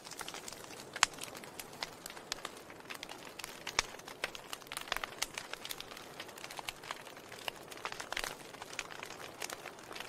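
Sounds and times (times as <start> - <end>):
wood fire crackling: 0.0 - 10.0.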